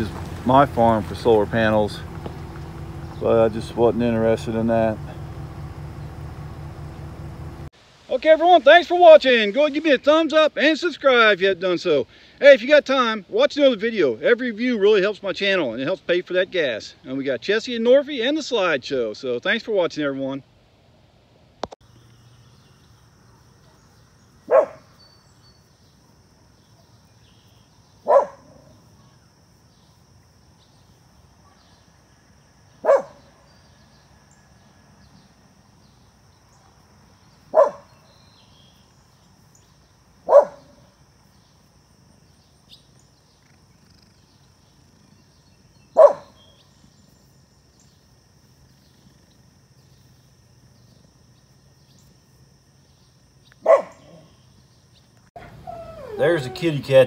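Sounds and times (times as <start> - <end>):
dog barking: 24.5 - 24.9, 28.0 - 28.7, 32.8 - 33.3, 37.5 - 38.0, 40.2 - 40.9, 45.9 - 46.4, 53.6 - 54.3.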